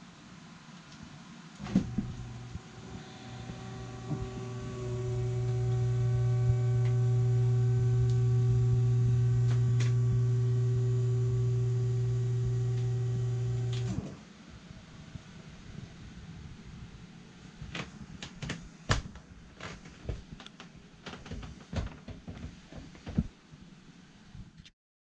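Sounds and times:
electric lift motor humming: 0:01.6 - 0:14.2.

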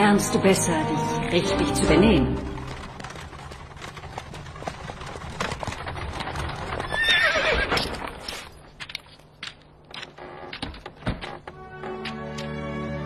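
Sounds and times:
horse hooves clip-clopping: 0:01.4 - 0:12.7
horse neighing: 0:06.8 - 0:08.0.

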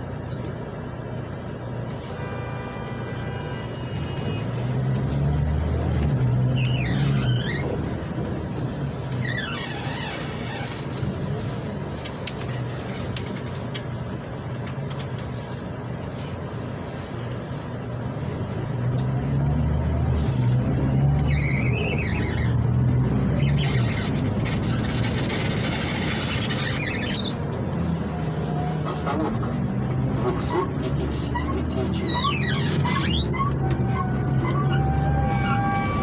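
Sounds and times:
bus diesel engine running: 0:00.0 - 0:36.0
short high-pitched squeals: 0:06.2 - 0:07.9, 0:20.2 - 0:27.6, 0:28.6 - 0:36.0.

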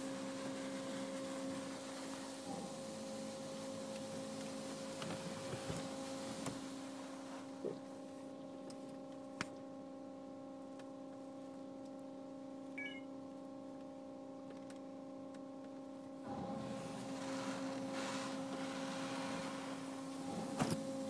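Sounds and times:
water spray hissing on car: 0:00.0 - 0:07.6, 0:16.6 - 0:21.0
car wash machinery whine: 0:00.0 - 0:21.0.

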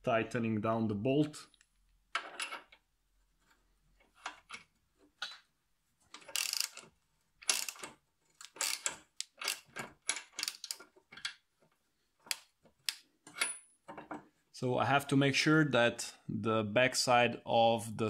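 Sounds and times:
socket ratchet clicking: 0:06.2 - 0:06.8, 0:07.4 - 0:10.9.

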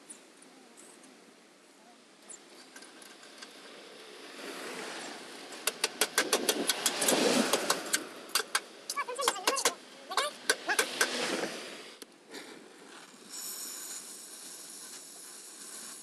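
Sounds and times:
hammer tapping sheet metal: 0:05.6 - 0:09.8.

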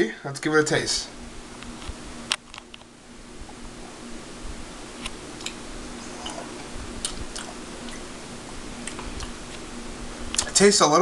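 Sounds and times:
faint steady hum: 0:00.0 - 0:11.0
person sipping beer: 0:05.9 - 0:09.4
mouth clicks: 0:06.2 - 0:08.1.

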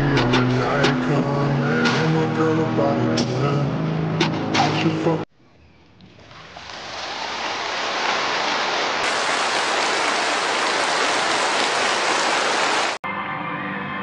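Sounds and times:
crowd applause: 0:06.8 - 0:13.0.

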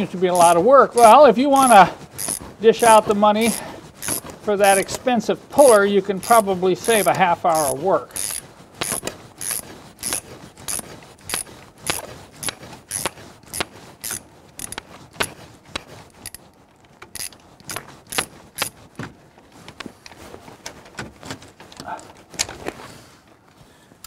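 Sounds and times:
ratcheting wrench clicking: 0:00.4 - 0:02.4, 0:03.4 - 0:04.9, 0:05.6 - 0:15.3, 0:17.1 - 0:18.8.

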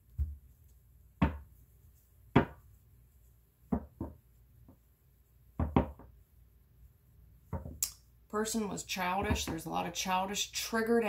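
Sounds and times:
cards knocking on table: 0:02.3 - 0:02.6.

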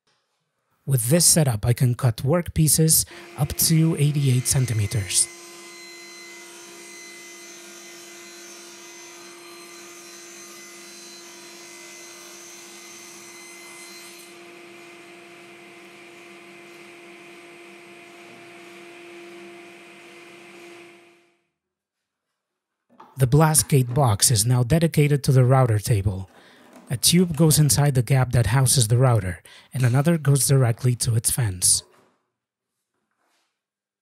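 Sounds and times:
table saw motor humming: 0:03.0 - 0:21.2.

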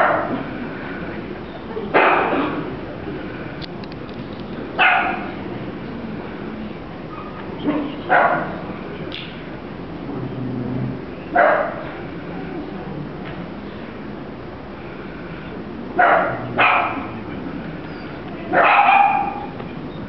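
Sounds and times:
dog barking: 0:00.0 - 0:00.4, 0:02.0 - 0:02.4, 0:04.8 - 0:05.3, 0:07.2 - 0:08.6, 0:11.4 - 0:11.8, 0:16.0 - 0:17.2, 0:18.5 - 0:19.6.

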